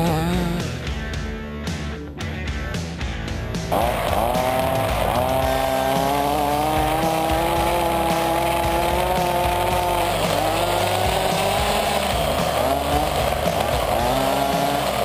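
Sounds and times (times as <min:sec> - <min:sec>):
two-stroke engine revving: 0:00.0 - 0:00.8, 0:03.6 - 0:15.0
buggy running over gravel: 0:03.7 - 0:15.0.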